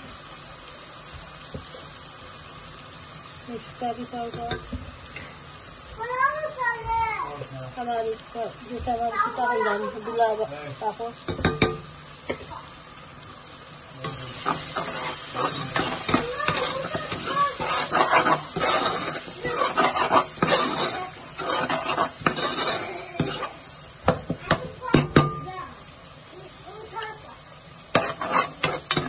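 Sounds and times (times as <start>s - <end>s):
oil sizzling: 0.0s - 29.0s
spoon tapping pot: 11.3s - 12.4s
spoon scraping metal pot: 14.4s - 23.6s, 27.9s - 29.0s.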